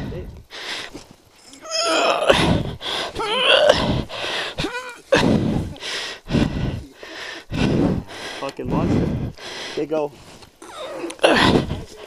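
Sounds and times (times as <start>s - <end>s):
person panting: 0.0s - 1.0s, 2.3s - 12.0s
person grunting: 1.6s - 5.5s, 10.6s - 12.0s.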